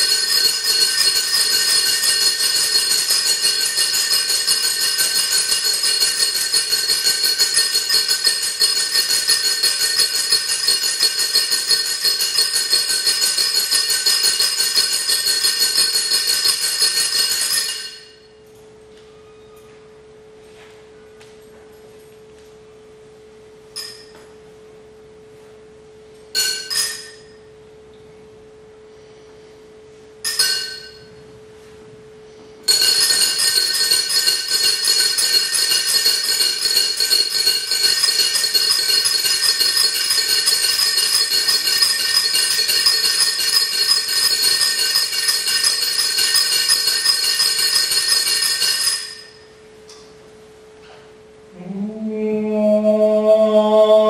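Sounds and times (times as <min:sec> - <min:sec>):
metallic jingle of iron instruments: 0:00.0 - 0:18.6, 0:23.7 - 0:24.4, 0:26.3 - 0:27.5, 0:30.2 - 0:31.2, 0:32.6 - 0:50.1.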